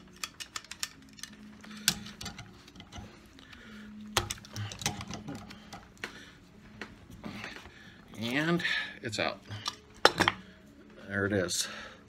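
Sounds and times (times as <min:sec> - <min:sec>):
hand ratchet clicking: 0:00.0 - 0:02.4.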